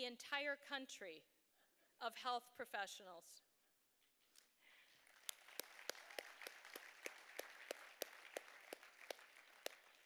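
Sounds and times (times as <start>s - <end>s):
faint audience applause: 4.9s - 10.0s
hands clapping nearby: 5.0s - 10.0s.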